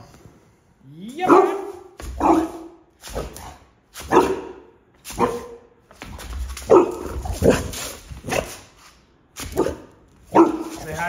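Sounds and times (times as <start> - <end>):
dog barking: 1.2 - 5.7, 6.6 - 8.6, 9.5 - 11.0.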